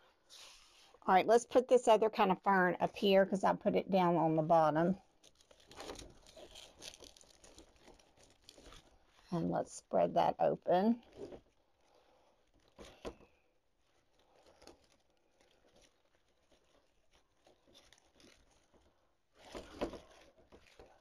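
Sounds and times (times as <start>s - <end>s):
artificial fern stems rustling: 4.6s - 9.4s, 10.8s - 21.0s.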